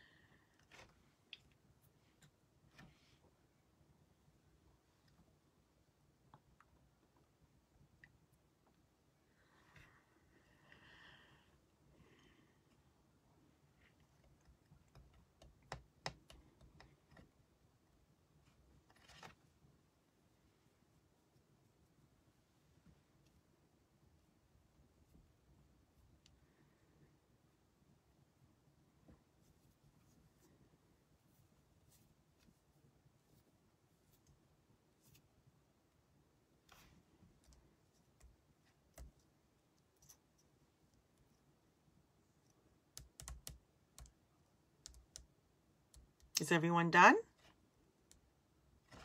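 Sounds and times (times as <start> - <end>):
faint clicks and taps: 13.8 - 17.6, 36.6 - 41.5, 42.4 - 46.4.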